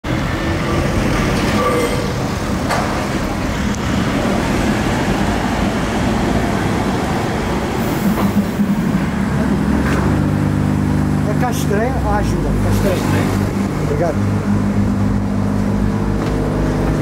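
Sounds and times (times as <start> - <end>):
street traffic: 0.0 - 17.0
tram rumbling on rails: 0.0 - 17.0.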